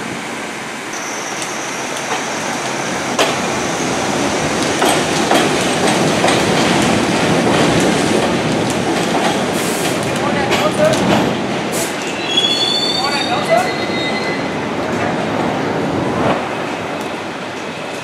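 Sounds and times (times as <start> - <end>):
train rail rumble: 0.0 - 18.0
wheels clacking over rail joints: 1.4 - 12.2.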